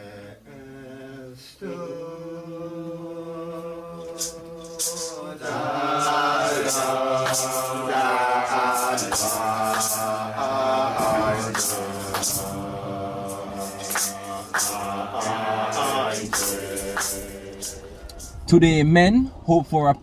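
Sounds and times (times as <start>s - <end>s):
group of voices chanting hymn: 0.0s - 18.3s
crisp high percussion hits: 3.9s - 18.4s.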